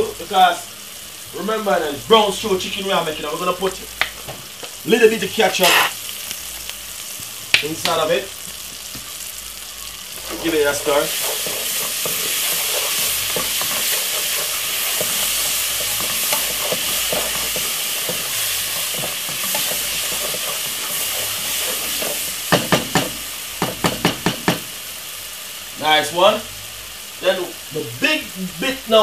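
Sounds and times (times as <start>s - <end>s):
sizzling in hot oil: 0.0s - 29.0s
spoon stirring in pot: 10.1s - 23.1s.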